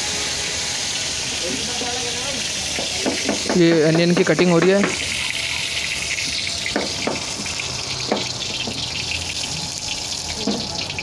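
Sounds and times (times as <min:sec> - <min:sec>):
stove hiss: 0:00.0 - 0:11.0
knife knocking on chopping board: 0:08.1 - 0:08.3.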